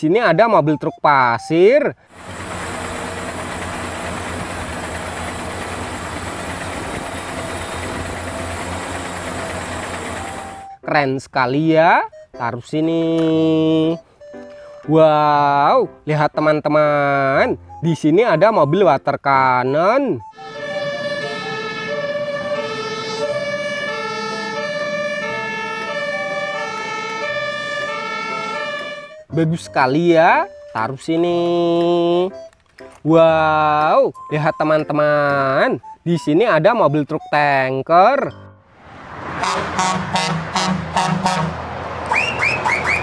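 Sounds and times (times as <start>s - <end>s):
diesel truck engine humming: 2.0s - 10.9s, 19.7s - 37.5s, 38.3s - 43.0s.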